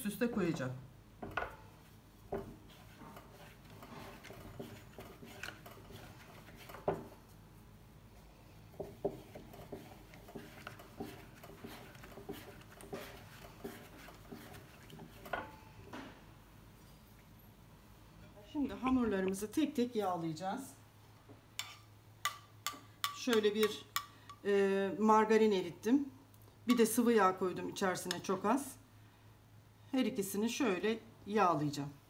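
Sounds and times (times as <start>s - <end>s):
rolling pin rubbing on dough: 2.4s - 7.1s, 8.7s - 15.3s.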